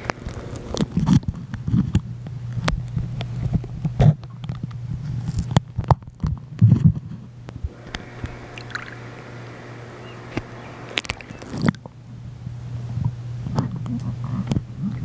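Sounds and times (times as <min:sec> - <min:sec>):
steady low hum: 0:00.0 - 0:15.0
water sloshing and splashing: 0:07.7 - 0:09.7
underwater gurgling: 0:07.7 - 0:11.9.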